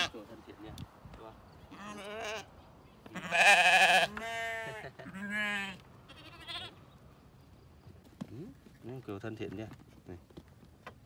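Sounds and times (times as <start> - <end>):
sheep bleating: 1.7 - 2.5, 3.1 - 6.8.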